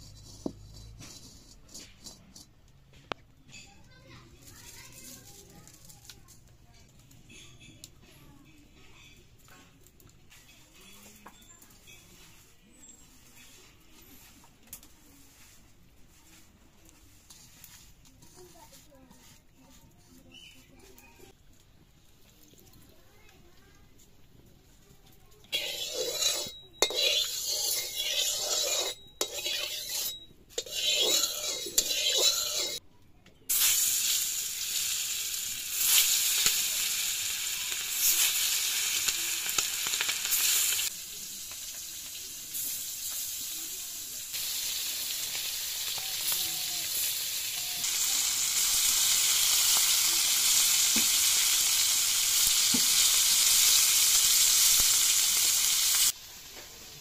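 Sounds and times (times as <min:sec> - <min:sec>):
metal spatula scraping pan: 0:00.0 - 0:02.6, 0:25.4 - 0:32.8
fish sizzling in hot oil: 0:25.5 - 0:32.8, 0:33.5 - 0:57.0.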